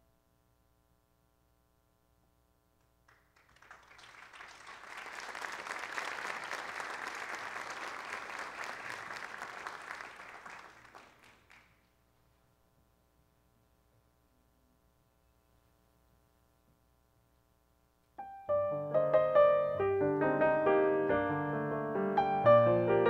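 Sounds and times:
audience applauding: 3.1s - 11.9s.

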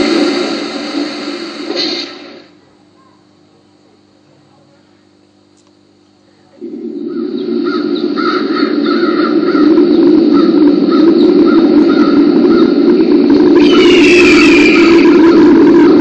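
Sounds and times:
steady rushing noise: 0.0s - 2.6s, 6.6s - 16.0s
crows cawing: 7.0s - 12.8s.

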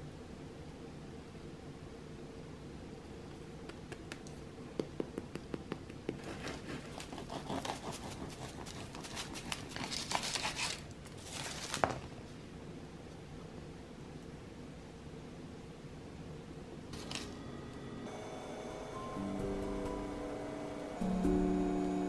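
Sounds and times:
bread crust crackling: 5.9s - 12.0s
knife sawing through bread: 6.2s - 10.8s
steady low hum: 12.2s - 22.0s.

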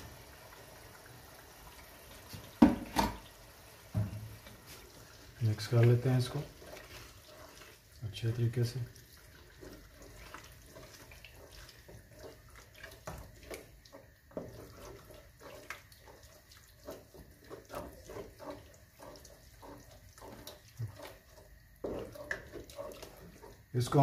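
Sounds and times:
low frying sizzle: 0.0s - 24.0s
spatula scraping a metal pot: 5.6s - 24.0s.

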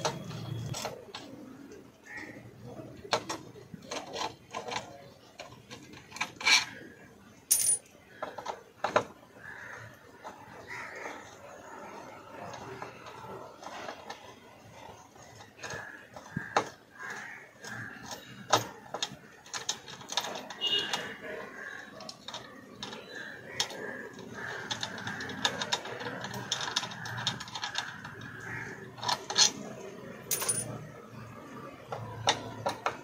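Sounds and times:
spanner clicking on bolts: 23.6s - 29.6s.

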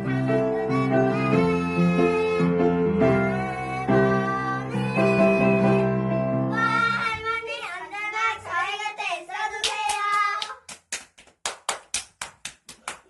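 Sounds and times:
piano chord: 0.0s - 7.0s
girls singing: 0.0s - 10.5s
hand clapping: 9.6s - 13.0s.

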